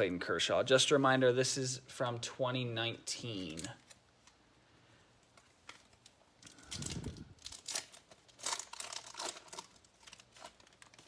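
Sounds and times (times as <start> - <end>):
cards rustling: 3.2 - 4.5, 5.2 - 11.0
wrapper tearing and crinkling: 3.4 - 4.4, 5.4 - 11.0.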